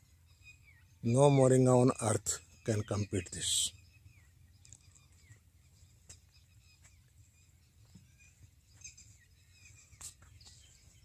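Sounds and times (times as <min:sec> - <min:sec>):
high bird chirps: 0:00.0 - 0:11.0.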